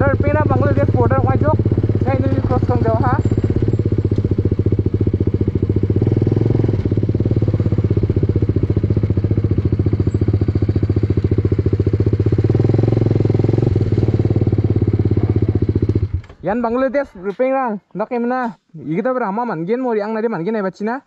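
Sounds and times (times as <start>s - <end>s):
motorcycle engine at low revs: 0.0s - 16.7s.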